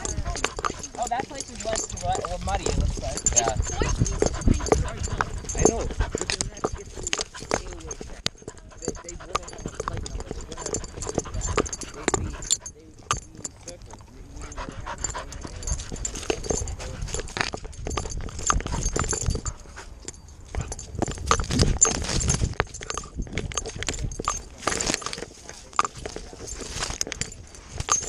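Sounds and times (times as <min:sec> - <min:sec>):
dog paws thudding: 0:00.0 - 0:28.0
dry grass rustling: 0:24.4 - 0:28.0.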